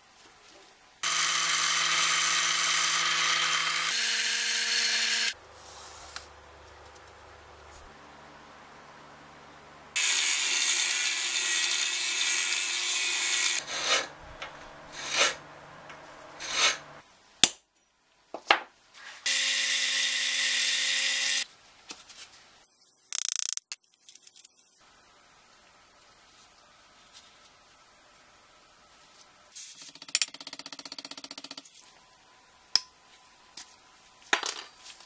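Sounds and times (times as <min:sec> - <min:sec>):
angle grinder cutting steel: 0:01.0 - 0:05.4, 0:10.0 - 0:14.1, 0:19.3 - 0:21.4
power tool running: 0:01.0 - 0:05.4, 0:10.0 - 0:14.1, 0:19.3 - 0:21.4
scraping strokes: 0:13.6 - 0:14.2, 0:14.9 - 0:15.4, 0:16.4 - 0:16.9.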